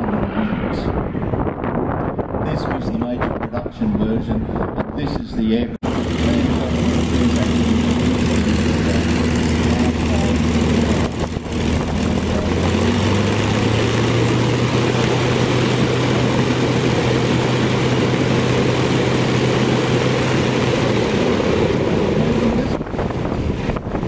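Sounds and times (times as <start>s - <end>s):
propeller plane engine running: 5.8s - 24.0s.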